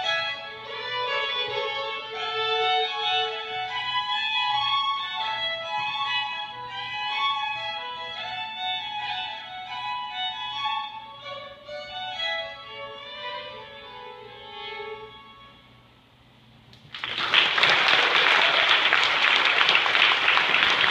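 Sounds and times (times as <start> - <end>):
two fiddles playing: 0.0 - 16.0
applause: 16.8 - 20.9.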